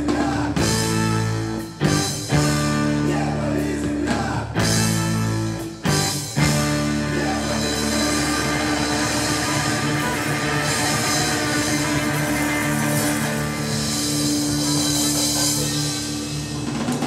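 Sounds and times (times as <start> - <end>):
electric guitars held chords: 0.0 - 17.0
wind instrument playing: 4.7 - 16.6.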